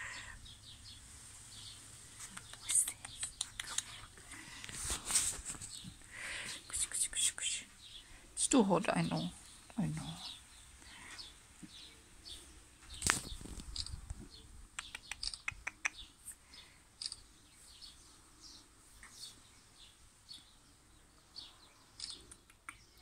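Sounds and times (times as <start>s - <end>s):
faint bird chirps: 0.0s - 4.6s, 5.6s - 23.0s
rustle: 0.0s - 23.0s
quick clicks: 14.8s - 16.0s, 22.0s - 22.8s.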